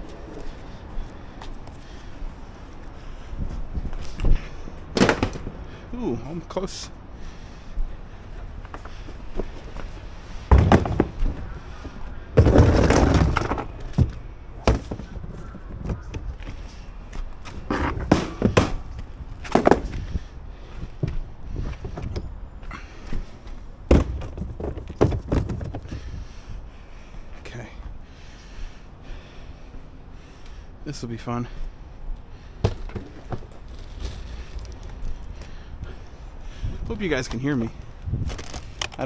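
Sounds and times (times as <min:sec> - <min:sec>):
equipment knocking and banging: 0:10.4 - 0:16.3, 0:17.7 - 0:20.0, 0:23.9 - 0:26.1, 0:32.6 - 0:34.7.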